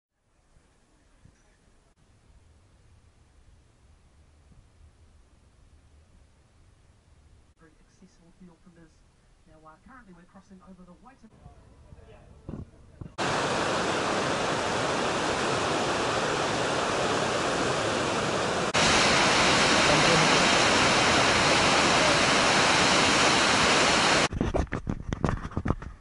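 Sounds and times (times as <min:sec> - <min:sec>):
waterfall rushing: 0:13.2 - 0:24.3.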